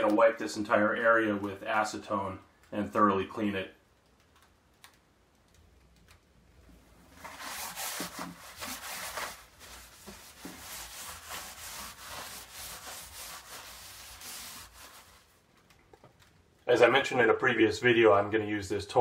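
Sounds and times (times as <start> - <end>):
paper towel rubbing fiberglass: 7.2 - 15.5.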